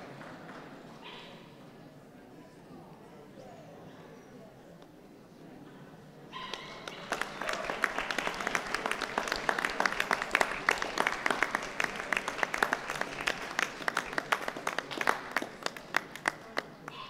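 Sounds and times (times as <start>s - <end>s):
audience clapping: 0.0s - 0.7s, 6.5s - 17.0s.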